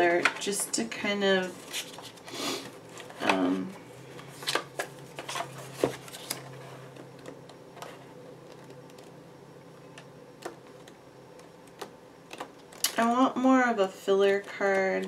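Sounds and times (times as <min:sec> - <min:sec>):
paper cards clicking against plastic tray: 0:09.9 - 0:13.1.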